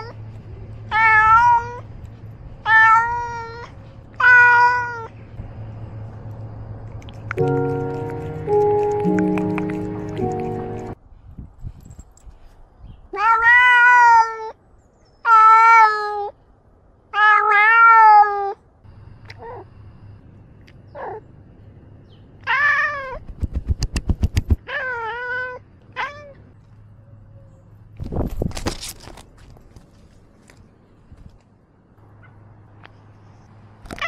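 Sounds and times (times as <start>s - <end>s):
cat meowing: 2.7s - 5.1s, 13.1s - 14.6s.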